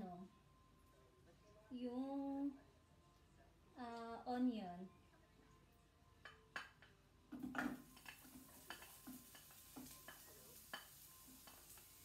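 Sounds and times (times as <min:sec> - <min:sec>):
spoon tapping plate and pan: 0:06.2 - 0:12.0
onion clattering into pan: 0:07.3 - 0:12.0
onion sizzling in pan: 0:07.5 - 0:12.0.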